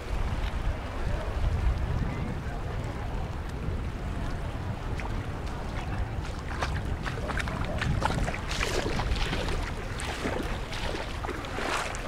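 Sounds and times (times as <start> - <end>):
seawater lapping and splashing on rocks: 3.4 - 12.0.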